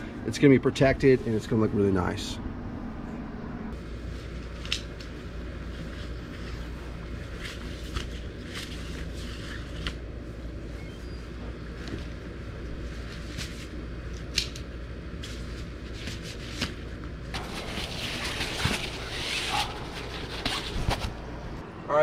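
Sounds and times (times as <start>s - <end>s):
steady low rumble: 0.0s - 8.6s
rustling: 15.2s - 21.6s.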